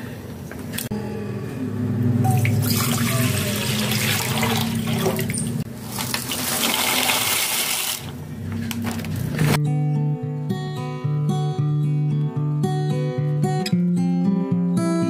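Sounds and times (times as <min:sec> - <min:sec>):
water splashing into a pot: 0:02.4 - 0:08.1.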